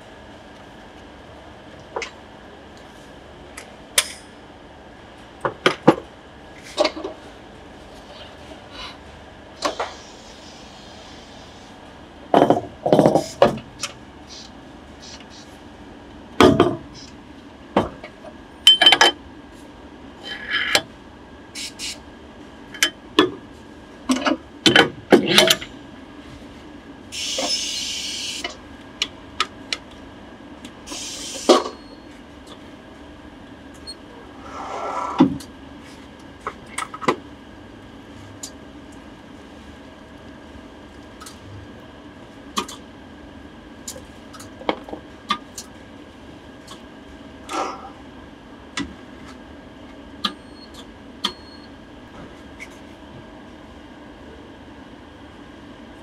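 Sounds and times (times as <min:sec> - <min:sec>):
compressed air hissing: 0:09.6 - 0:11.8, 0:14.3 - 0:15.5, 0:27.2 - 0:28.4, 0:30.9 - 0:31.6.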